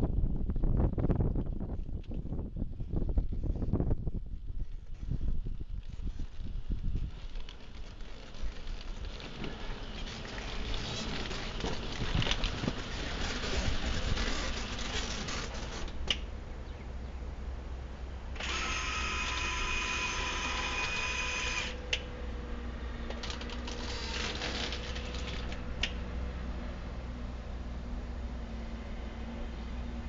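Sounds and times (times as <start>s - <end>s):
electric motor whine: 18.4s - 25.7s.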